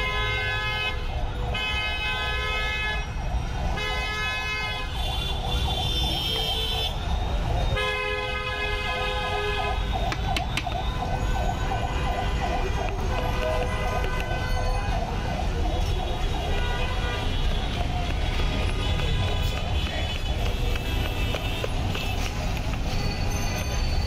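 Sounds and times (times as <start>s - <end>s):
low traffic rumble: 3.0s - 24.0s
vehicle horns blasting: 7.7s - 9.8s.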